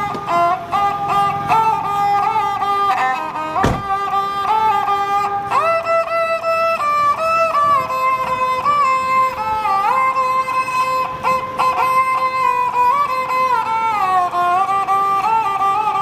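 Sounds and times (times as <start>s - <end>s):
bowed fiddle melody: 0.0s - 16.0s.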